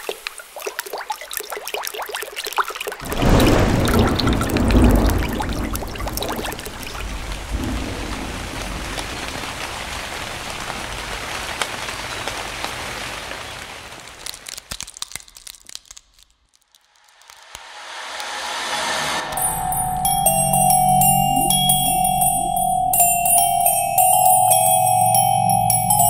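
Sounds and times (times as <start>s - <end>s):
water drips: 0.0s - 7.8s
rain falling: 3.0s - 15.4s.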